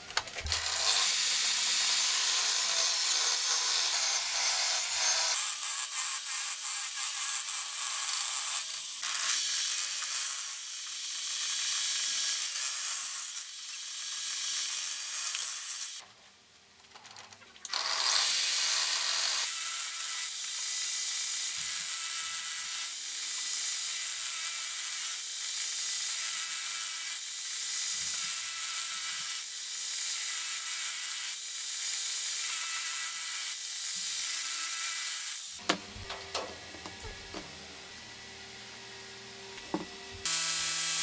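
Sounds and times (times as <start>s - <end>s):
table saw cutting wood: 0.3s - 16.0s, 17.7s - 41.0s
sharp knocks: 35.6s - 37.5s.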